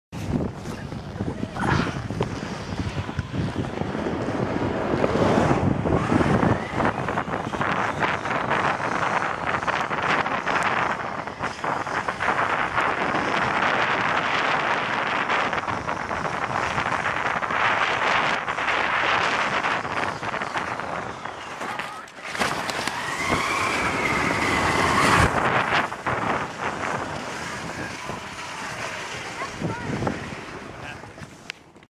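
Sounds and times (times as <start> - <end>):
wind buffeting microphone: 0.1 - 31.9
snow tube sliding over snow: 0.2 - 31.9
high-pitched rising and falling sound: 22.2 - 28.7.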